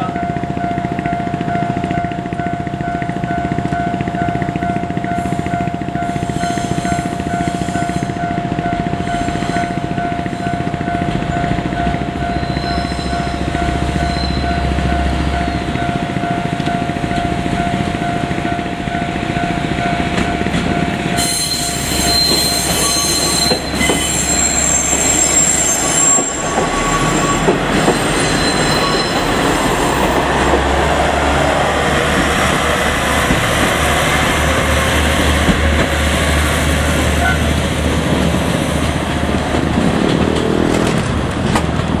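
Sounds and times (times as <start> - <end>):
level-crossing bell dinging: 0.0 - 27.5
high-pitched wheel squeal: 6.1 - 8.3, 12.2 - 14.7, 21.2 - 30.1.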